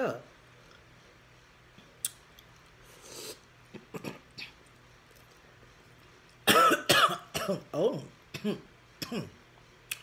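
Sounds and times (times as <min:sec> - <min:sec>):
woman coughing: 0:06.4 - 0:09.4.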